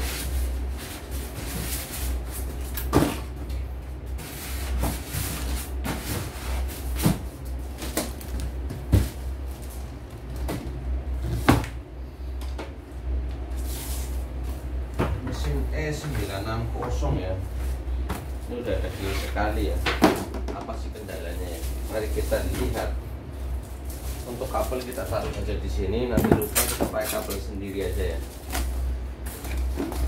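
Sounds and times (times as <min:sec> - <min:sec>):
cardboard and styrofoam rustling: 0:00.0 - 0:03.4, 0:04.1 - 0:10.5, 0:17.2 - 0:19.9, 0:20.9 - 0:30.0
steady low hum: 0:00.0 - 0:30.0.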